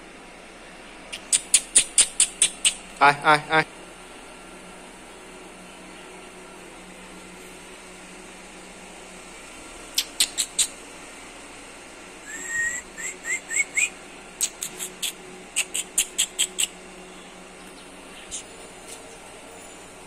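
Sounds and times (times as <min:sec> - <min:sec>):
steady background hum: 0:00.0 - 0:20.0
songbird singing: 0:01.1 - 0:03.1, 0:10.0 - 0:10.8, 0:12.3 - 0:19.4.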